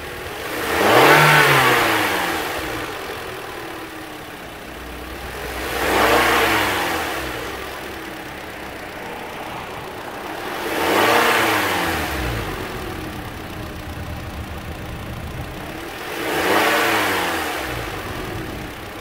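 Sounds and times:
car engine idling and revving: 0.0s - 19.0s.

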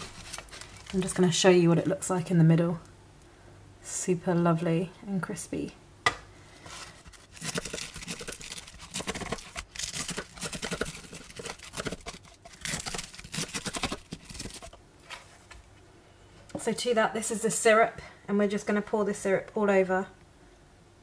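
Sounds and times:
knife cutting crisp pastry: 7.1s - 14.8s.

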